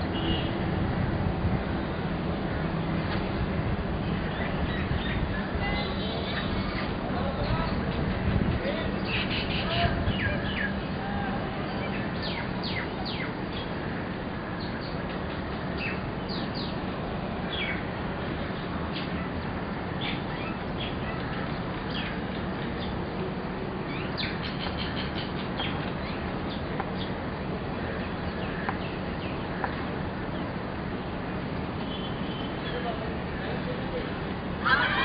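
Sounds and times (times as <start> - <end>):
small birds chirping: 4.0 - 13.8, 14.6 - 27.2.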